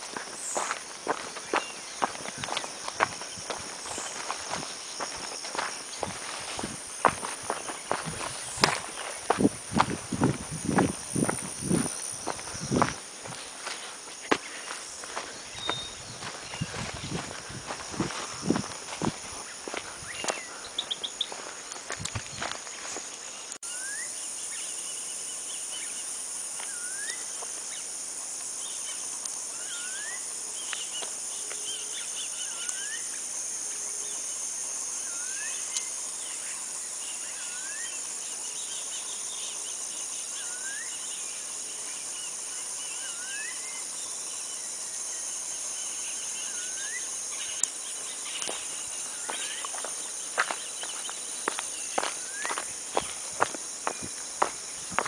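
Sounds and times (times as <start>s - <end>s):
footsteps crunching on stony track: 0.0s - 23.4s, 47.8s - 55.0s
high-pitched insect chorus: 0.0s - 55.0s
bird whistling: 15.6s - 16.0s.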